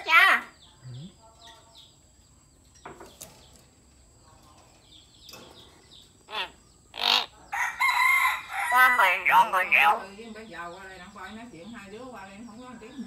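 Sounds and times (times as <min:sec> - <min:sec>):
myna bird calling: 0:04.9 - 0:13.0.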